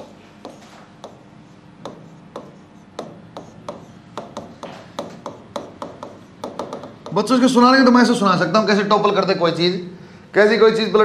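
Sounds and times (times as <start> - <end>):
scratching strokes on a board: 0.0 - 6.9
writing tip taps: 0.0 - 7.2.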